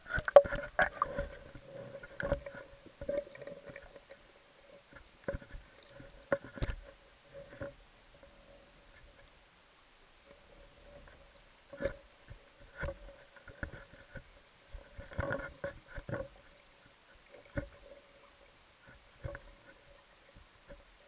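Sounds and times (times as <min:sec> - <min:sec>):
underwater clicks and knocks: 0:00.0 - 0:04.2, 0:04.9 - 0:08.3, 0:11.0 - 0:16.4, 0:17.3 - 0:18.0, 0:18.8 - 0:19.8
faint steady hum: 0:00.0 - 0:21.0.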